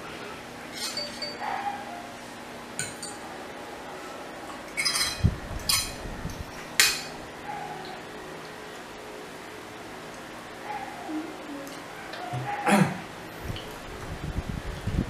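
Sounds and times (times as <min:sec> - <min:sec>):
forks clinking on plates: 0:00.7 - 0:01.7, 0:02.8 - 0:03.2, 0:04.7 - 0:06.0, 0:06.8 - 0:07.2.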